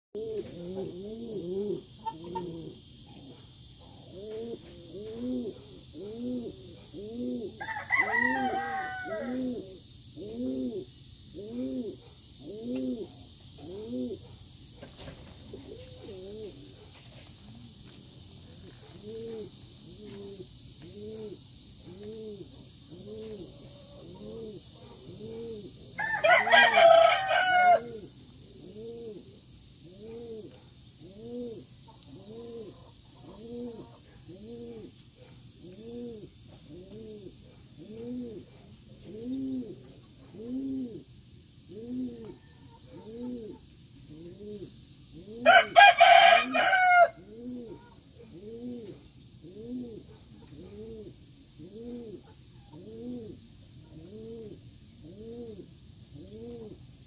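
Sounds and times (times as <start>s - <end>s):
pigeon cooing: 0.2s - 14.3s, 15.0s - 17.0s, 18.7s - 41.1s, 41.7s - 56.8s
rooster crowing: 7.5s - 9.6s, 26.0s - 28.1s, 45.4s - 47.3s.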